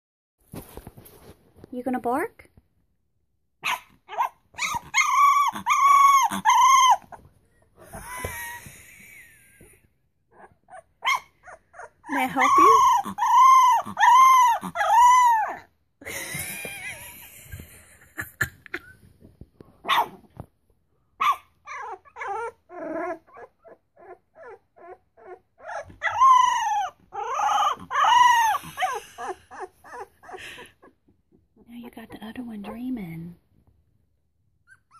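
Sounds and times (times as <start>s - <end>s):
puppies whining and yelping: 3.6s - 17.8s, 21.2s - 32.9s, 34.5s - 34.9s.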